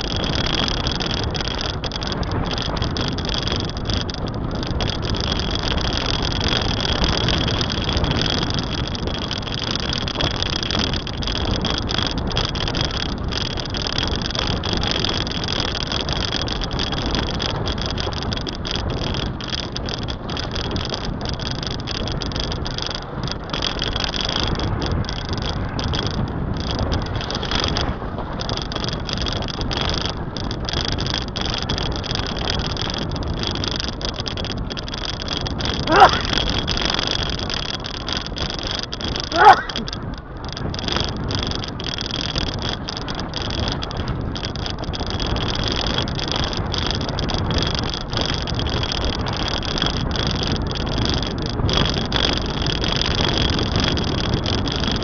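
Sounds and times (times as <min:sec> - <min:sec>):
constant high whine: 0:00.0 - 0:55.0
rushing wind: 0:00.0 - 0:55.0
car road noise: 0:17.4 - 0:45.2.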